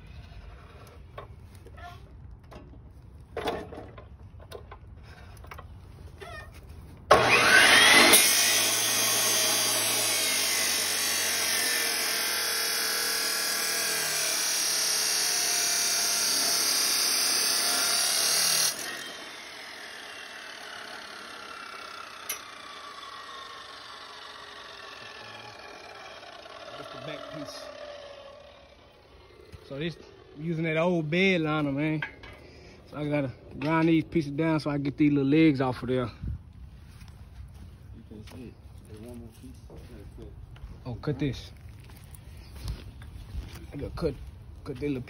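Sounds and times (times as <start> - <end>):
power cutting tool whining: 7.1 - 31.5.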